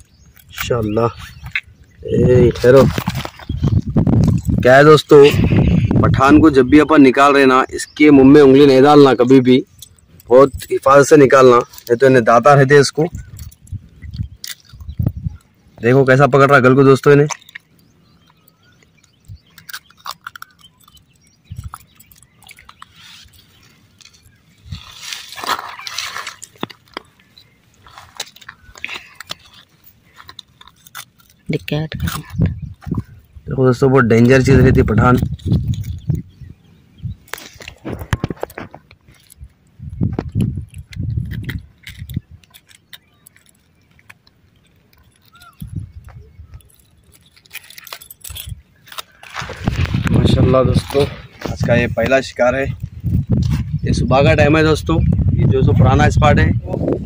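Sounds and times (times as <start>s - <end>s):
metal lure clinking: 44.7s - 49.0s.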